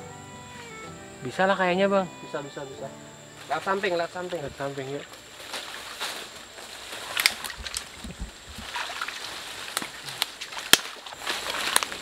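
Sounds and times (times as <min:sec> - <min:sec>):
water sloshing from wading: 0:05.4 - 0:11.8.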